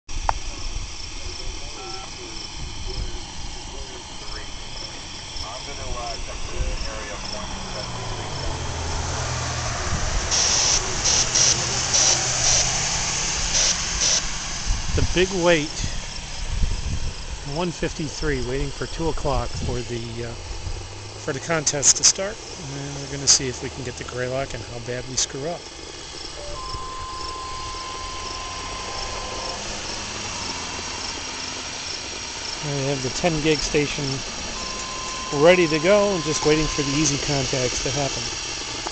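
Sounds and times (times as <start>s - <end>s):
insects chirping: 0.1s - 38.9s
short bursts of hiss: 0.2s - 25.0s
steady high tone: 1.2s - 16.4s, 26.2s - 38.4s
pickup truck driving past: 4.4s - 17.4s, 20.4s - 38.9s.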